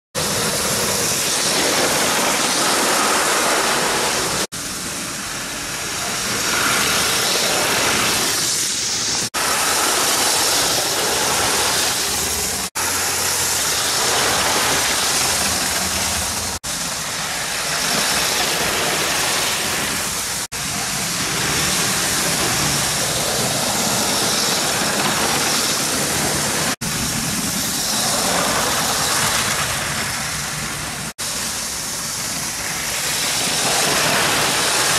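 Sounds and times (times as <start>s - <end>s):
toy train motor whirring: 5.7s - 30.8s, 31.4s - 34.9s
toy train wheels rattling: 6.0s - 30.8s.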